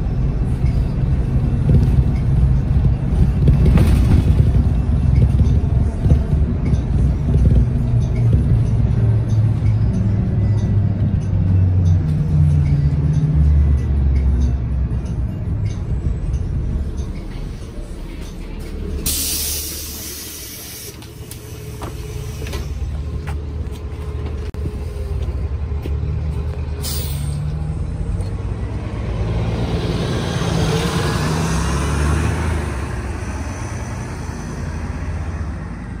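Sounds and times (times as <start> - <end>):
bus engine pulling away: 0.0 - 36.0
air brakes hissing: 19.0 - 22.9, 26.8 - 27.5.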